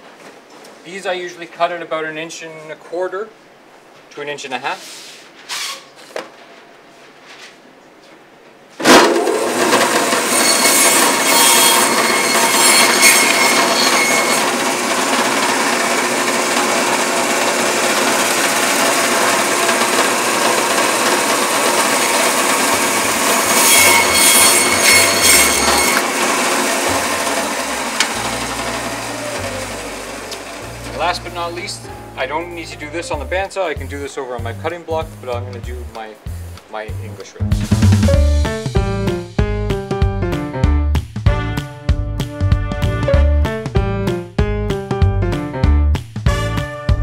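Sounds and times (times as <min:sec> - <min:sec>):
bandsaw cutting through bone: 0:08.9 - 0:30.8.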